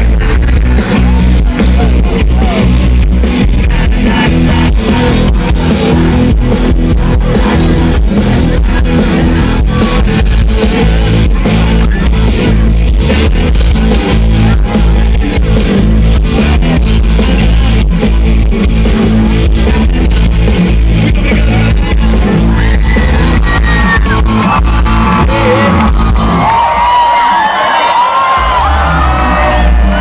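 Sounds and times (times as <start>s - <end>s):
steady drum beat: 0.0s - 26.6s
electric guitar: 0.0s - 30.0s
pop-rock band playing live: 0.0s - 30.0s.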